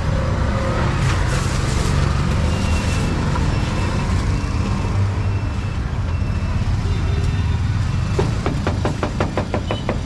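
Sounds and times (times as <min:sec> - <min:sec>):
street traffic rumble: 0:00.0 - 0:10.0
plastic bag rustling: 0:01.1 - 0:03.3.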